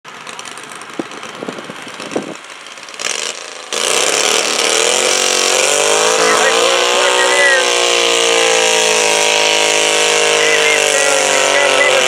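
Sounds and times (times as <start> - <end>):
garden tractor engine revving: 2.9 - 12.0.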